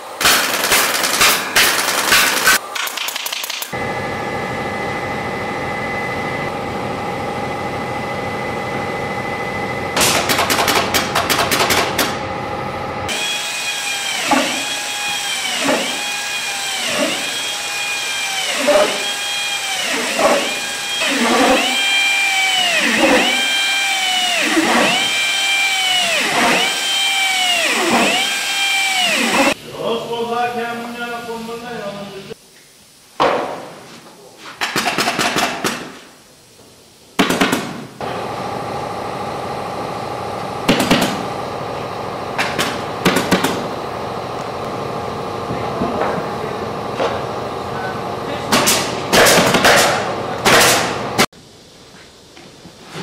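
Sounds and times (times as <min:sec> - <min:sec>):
steady hum: 0:03.8 - 0:27.8, 0:38.0 - 0:52.9
electric drill boring into foam: 0:13.1 - 0:29.6
staple gun firing: 0:48.5 - 0:50.9.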